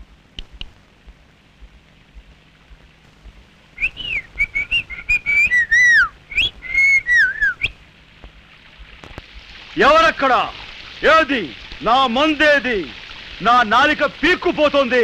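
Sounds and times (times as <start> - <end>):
person whistling a tune: 3.8 - 7.7.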